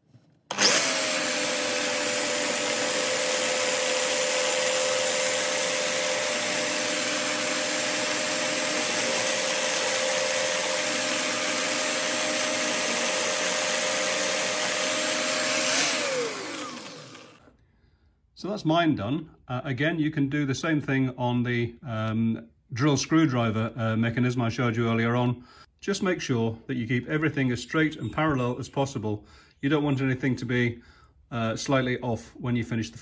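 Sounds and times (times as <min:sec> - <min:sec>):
cordless drill motor whine: 0:00.5 - 0:17.5
drill bit drilling into wood: 0:00.5 - 0:17.5.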